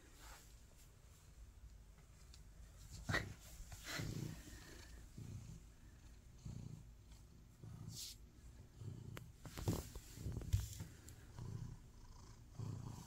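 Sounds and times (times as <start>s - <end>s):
cat purring: 3.0s - 13.0s
hand rubbing fur: 7.8s - 8.2s.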